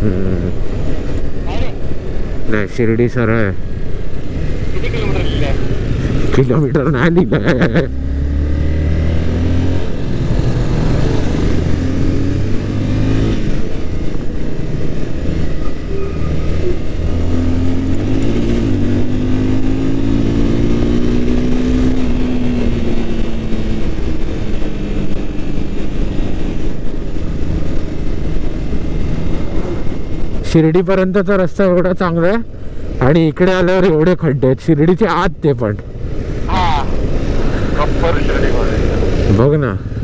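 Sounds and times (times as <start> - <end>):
wind and road noise: 0.0 - 40.0
motorcycle engine revving: 3.5 - 30.4, 35.8 - 40.0.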